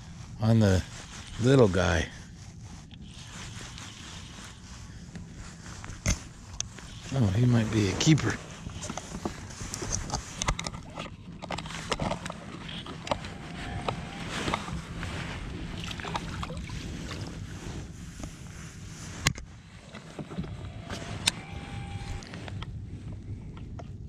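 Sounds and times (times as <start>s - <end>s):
steady low hum: 0.0s - 24.0s
water noise: 12.3s - 18.3s.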